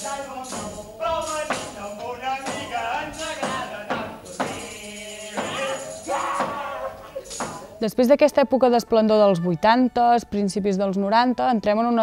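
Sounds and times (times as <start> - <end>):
people singing: 0.0 - 7.8
tambourine jingling: 0.0 - 7.9.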